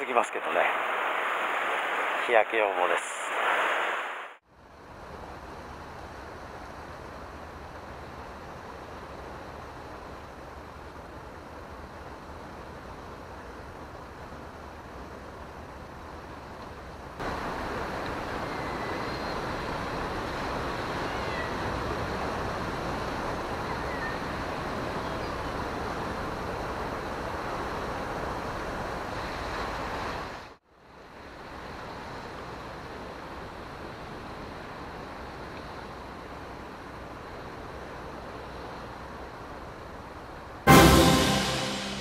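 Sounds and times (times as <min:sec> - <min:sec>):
surf on rocky shore: 0:00.0 - 0:04.4.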